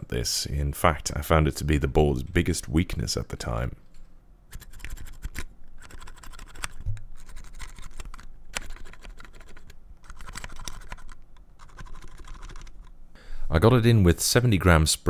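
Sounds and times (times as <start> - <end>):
keyboard keys clicking: 4.6 - 12.9.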